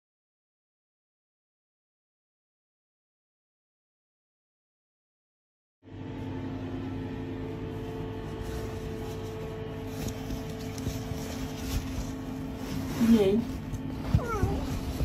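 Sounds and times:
machine hum: 0:05.8 - 0:15.0
cloth bag rustling: 0:07.6 - 0:15.0.

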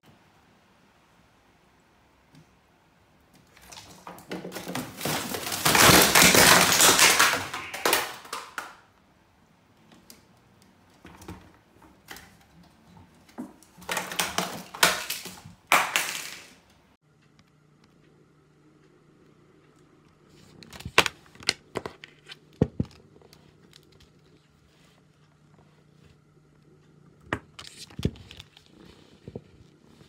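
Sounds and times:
bottles and packets rattling: 0:03.4 - 0:08.7, 0:13.1 - 0:16.6.

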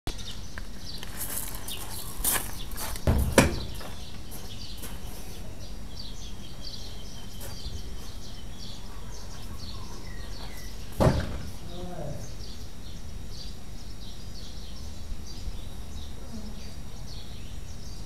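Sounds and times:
birds chirping: 0:00.1 - 0:18.0
outdoor background noise: 0:00.1 - 0:18.0
dull thumps: 0:03.0 - 0:04.0, 0:11.0 - 0:11.6.

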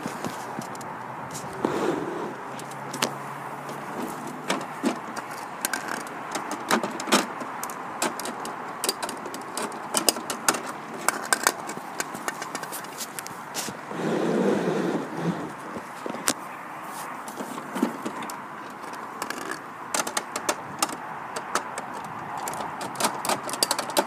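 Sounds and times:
plastic toy clicks and knocks: 0:04.5 - 0:12.7, 0:17.7 - 0:24.0.

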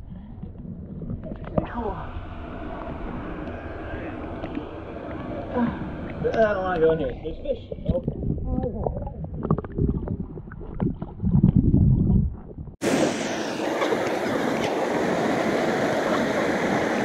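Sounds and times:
muffled underwater churning: 0:00.0 - 0:17.0
waterfall rushing into pool: 0:12.8 - 0:17.0.

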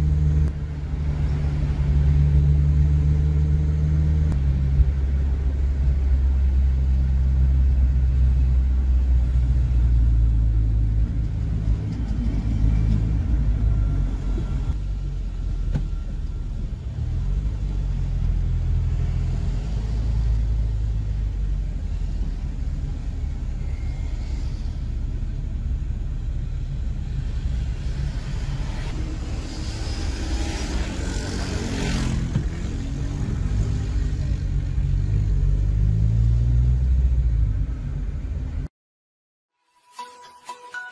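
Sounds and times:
car engine and tyre rumble: 0:00.0 - 0:38.7.

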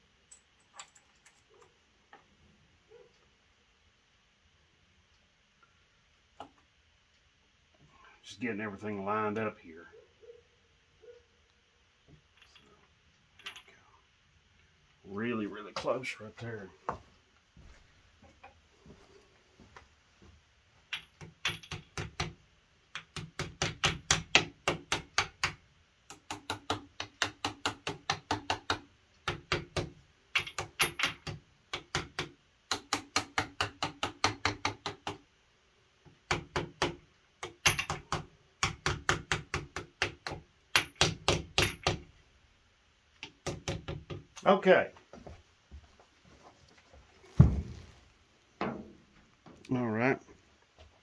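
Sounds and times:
hammer tapping metal: 0:36.3 - 0:42.1.

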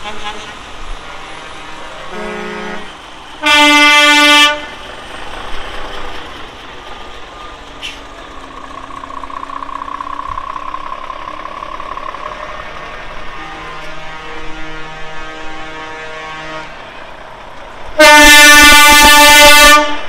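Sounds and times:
truck air horn blasts: 0:00.0 - 0:00.6, 0:01.2 - 0:04.7, 0:13.2 - 0:16.8, 0:18.0 - 0:20.0.

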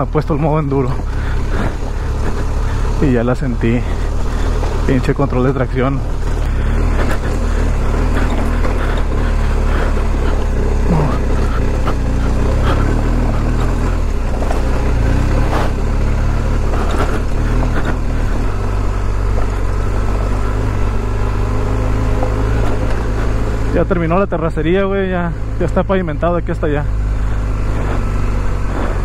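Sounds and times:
motorcycle engine running: 0:00.0 - 0:29.0
knocks and clatter from bike: 0:06.2 - 0:10.6, 0:11.4 - 0:21.0.

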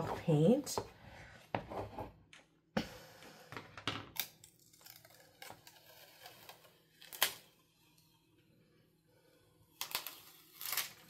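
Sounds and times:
plastic sheet peeling crackle: 0:09.8 - 0:11.0.

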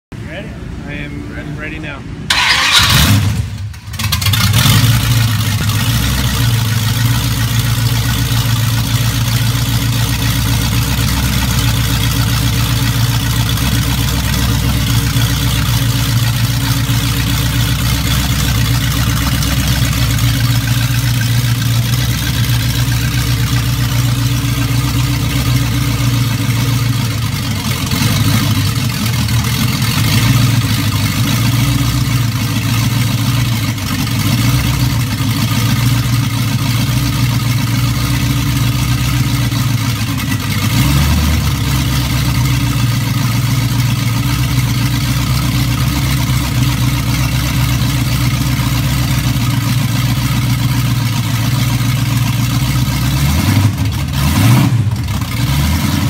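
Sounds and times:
car engine running: 0:00.2 - 0:56.0.

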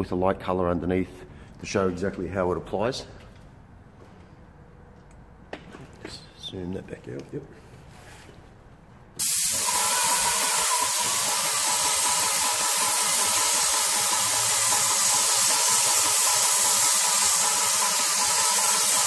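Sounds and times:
paint spray gun hissing: 0:09.2 - 0:19.0.

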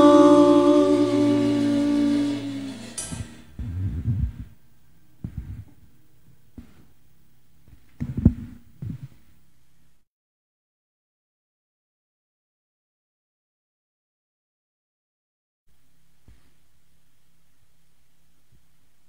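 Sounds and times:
keyboard and voices chord: 0:00.0 - 0:03.7
faint low hum: 0:00.0 - 0:10.0, 0:15.7 - 0:19.0
microphones being handled: 0:03.1 - 0:04.6, 0:05.2 - 0:05.9, 0:06.6 - 0:07.0, 0:07.6 - 0:09.4.

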